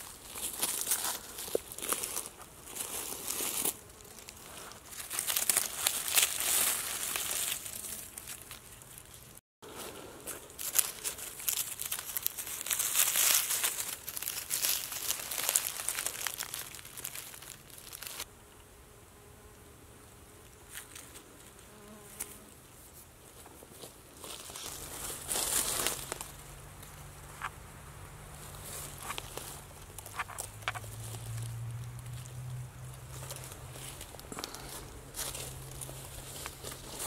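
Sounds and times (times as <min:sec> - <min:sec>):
dry leaves rustling: 0:00.0 - 0:18.3, 0:23.6 - 0:37.0
faint steady buzz: 0:18.2 - 0:23.3.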